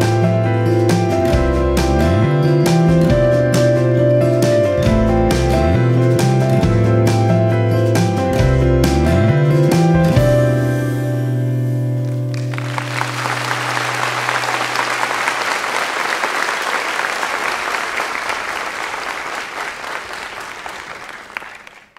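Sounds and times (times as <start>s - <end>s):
audience applause: 12.3s - 21.9s.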